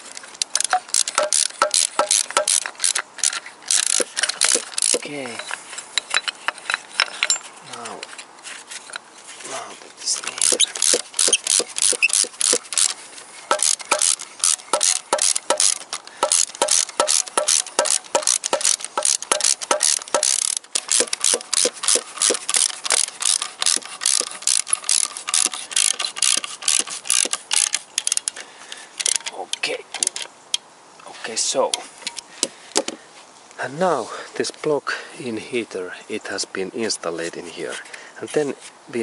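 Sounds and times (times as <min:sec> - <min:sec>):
ratchet wrench clicking: 0:00.4 - 0:07.4, 0:10.4 - 0:28.4, 0:29.0 - 0:29.3.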